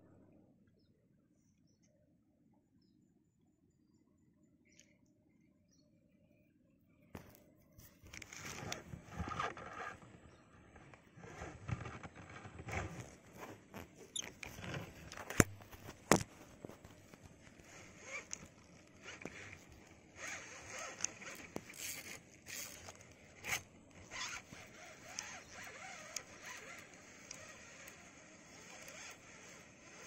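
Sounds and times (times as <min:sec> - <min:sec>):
fishing reel whirring: 0:17.0 - 0:30.0
fishing reel clicks: 0:17.6 - 0:30.0.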